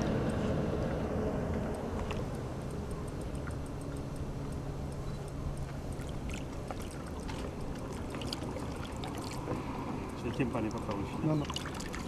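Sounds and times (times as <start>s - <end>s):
low steady hum: 0.0s - 12.0s
water splashing: 5.6s - 12.0s.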